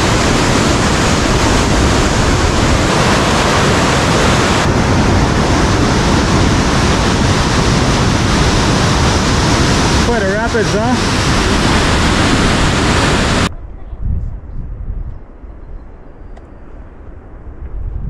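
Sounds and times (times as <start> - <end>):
river rapids roaring: 0.0 - 13.5.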